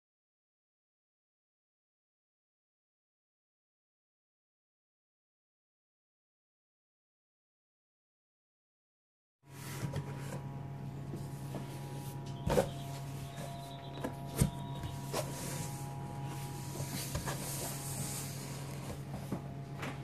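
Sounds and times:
steady low hum: 0:09.5 - 0:20.0
cardboard box being handled: 0:11.2 - 0:19.3.

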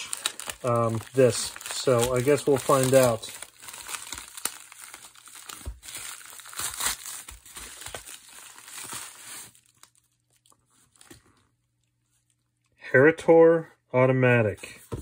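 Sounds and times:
plastic crinkling and tearing: 0:00.0 - 0:11.4.

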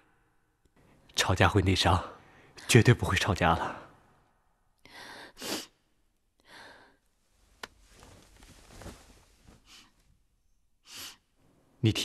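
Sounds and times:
person breathing tearfully: 0:04.8 - 0:05.8, 0:06.4 - 0:07.1.

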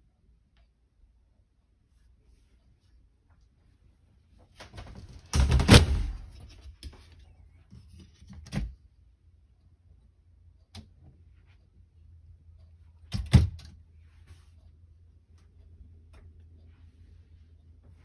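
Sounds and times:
doors rattling and banging: 0:04.7 - 0:06.4.

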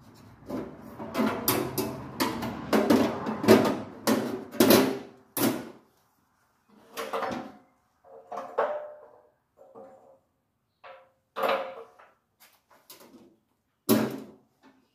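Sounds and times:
metal clanking and scraping: 0:00.1 - 0:05.0.

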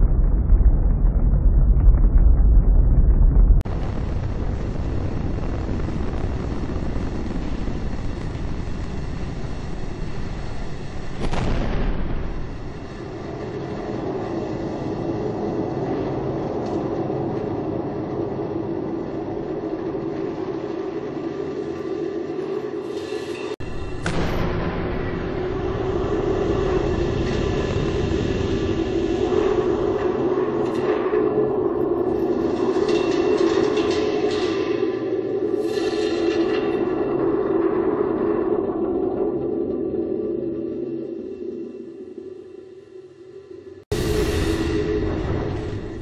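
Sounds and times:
rocket roar: 0:00.0 - 0:17.0, 0:43.9 - 0:46.0
deep rocket launch rumble: 0:00.0 - 0:19.1, 0:23.6 - 0:30.7, 0:43.8 - 0:46.0.

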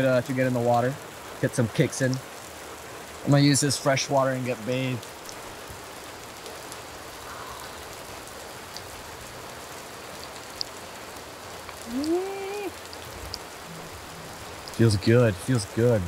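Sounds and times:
steady rain: 0:00.0 - 0:16.0
man's rising vocal sound: 0:11.8 - 0:12.8.

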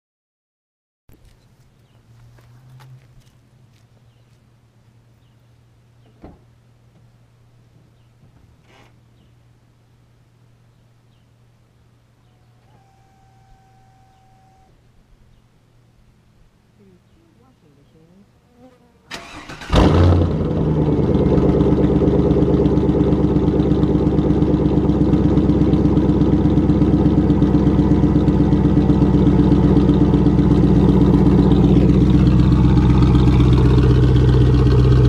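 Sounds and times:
engine starter cranking: 0:19.1 - 0:20.6
car engine idling: 0:19.1 - 0:35.0.

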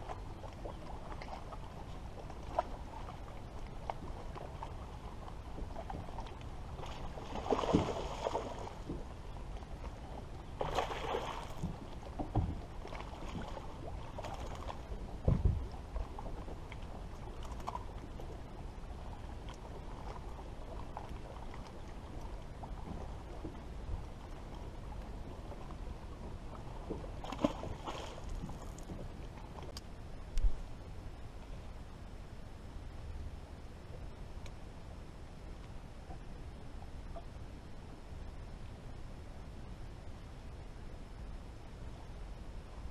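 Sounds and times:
water lapping: 0:00.0 - 0:29.7
wind: 0:00.0 - 0:42.9.

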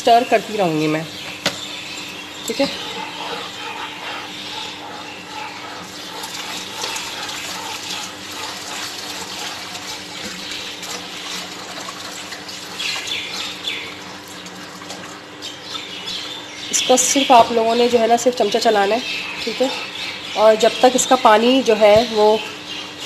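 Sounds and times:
steady low hum: 0:00.0 - 0:23.0
spatula stirring in pan: 0:01.8 - 0:14.6.

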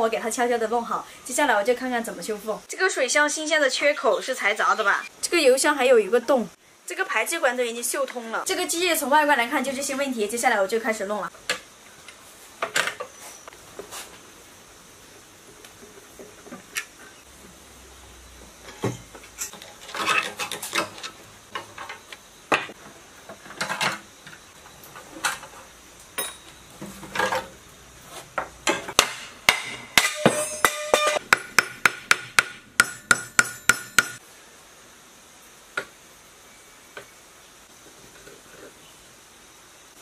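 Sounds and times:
metal tools clinking on engine: 0:26.2 - 0:27.5
sharp ringing metal taps: 0:32.8 - 0:34.2.

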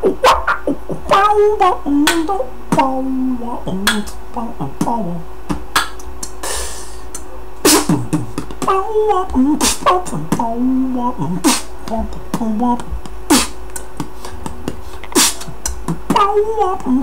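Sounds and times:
beatbox drum hits: 0:00.0 - 0:03.0, 0:03.7 - 0:04.2, 0:04.8 - 0:10.5, 0:11.3 - 0:17.0
pitched vocal line: 0:00.0 - 0:17.0
hissed vocal cymbal: 0:06.2 - 0:11.8.

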